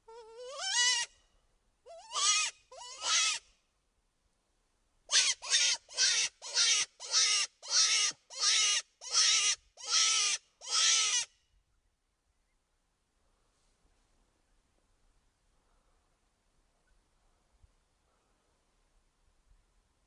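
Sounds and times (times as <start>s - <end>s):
raspy squealing distress cries: 0.1s - 1.1s, 1.9s - 3.4s.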